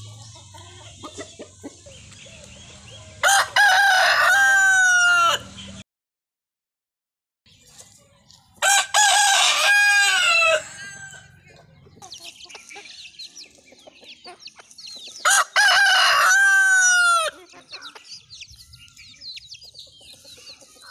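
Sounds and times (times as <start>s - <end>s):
chicken calls: 0.0s - 5.8s, 7.6s - 20.9s
rooster crowing: 3.2s - 5.5s, 8.6s - 11.3s, 15.2s - 17.4s.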